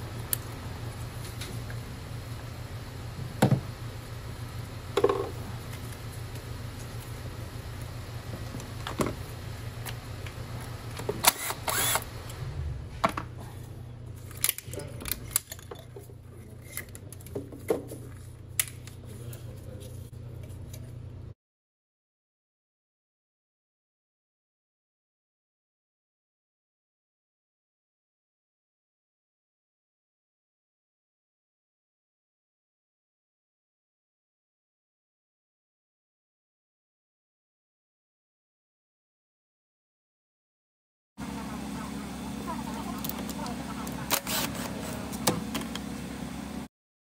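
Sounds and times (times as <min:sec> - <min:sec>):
low hum: 0:00.0 - 0:21.4.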